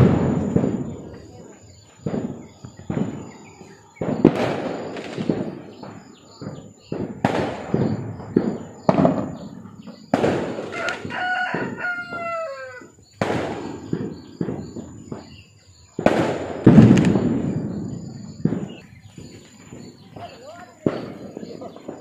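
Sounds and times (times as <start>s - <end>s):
firecrackers banging: 0.0s - 22.0s
rooster crowing: 10.6s - 13.1s.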